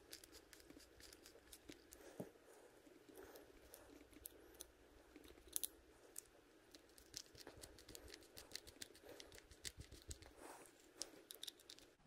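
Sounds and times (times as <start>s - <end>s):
small metal parts clicking: 5.3s - 6.3s, 11.0s - 12.0s.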